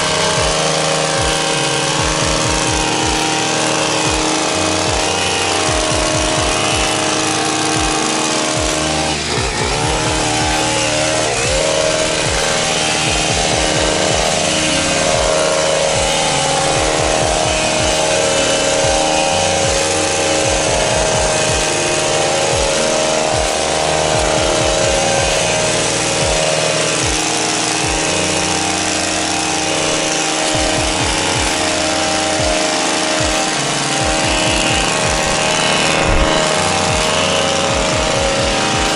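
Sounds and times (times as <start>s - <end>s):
blades cutting shrub: 0.0s - 38.9s
hedge trimmer engine running: 0.0s - 38.9s.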